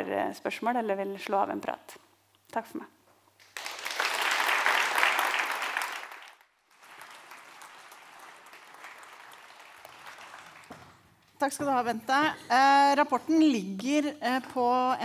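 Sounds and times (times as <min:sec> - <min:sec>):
audience applauding: 0:03.4 - 0:11.1.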